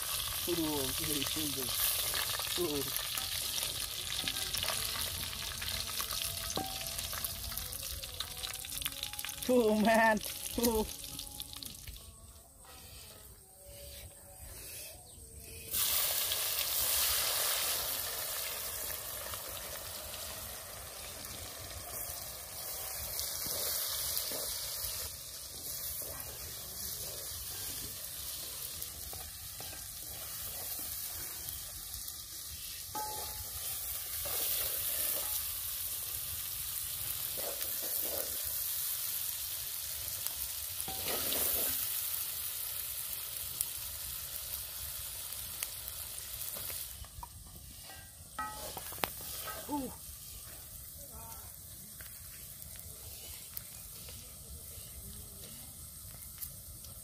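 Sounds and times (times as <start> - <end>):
food sizzling in oil: 0.0 - 12.3, 15.4 - 57.0.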